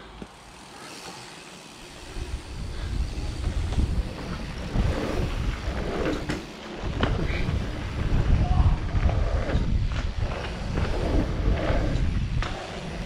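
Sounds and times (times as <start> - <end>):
bike tyres rolling on dirt: 0.0 - 13.0
wind buffeting microphone: 2.0 - 13.0.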